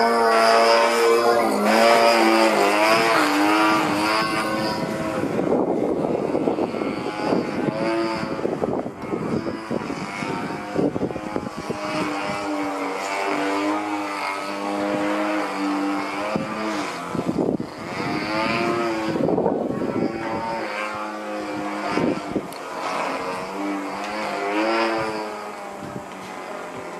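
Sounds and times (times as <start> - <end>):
model airplane engine buzzing: 0.0 - 26.9.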